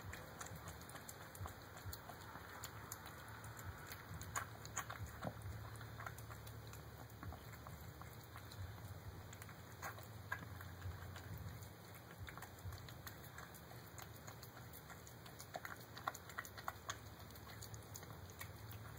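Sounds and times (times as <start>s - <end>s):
cat chewing food: 0.0s - 18.9s
low steady hum: 0.0s - 18.9s.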